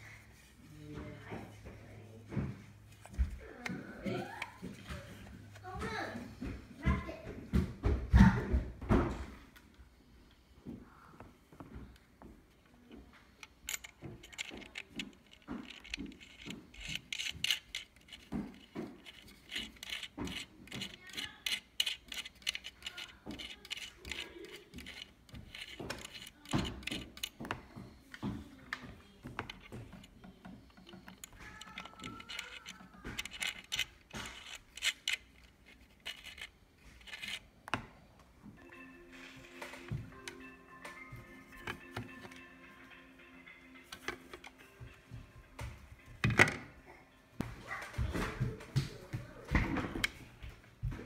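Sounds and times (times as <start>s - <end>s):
metal nut clicking and scraping: 13.4s - 27.6s, 29.3s - 37.8s
music: 38.6s - 47.6s.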